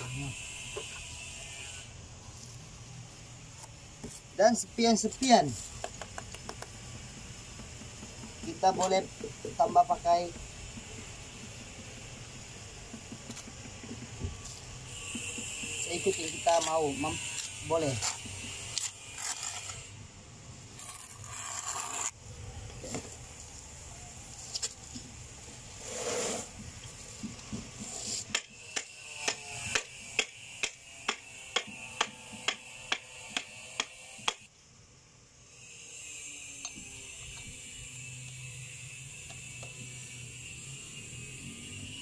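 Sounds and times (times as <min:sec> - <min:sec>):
tapping tiles into adhesive: 0:05.8 - 0:06.8
trowel scraping wet adhesive: 0:14.4 - 0:19.9, 0:20.7 - 0:22.2, 0:25.7 - 0:26.5.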